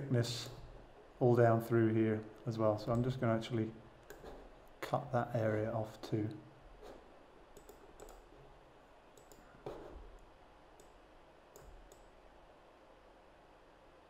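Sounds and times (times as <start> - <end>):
faint room hiss: 0.0 - 14.0
computer mouse clicking: 4.0 - 4.4, 6.8 - 8.3, 9.1 - 12.1.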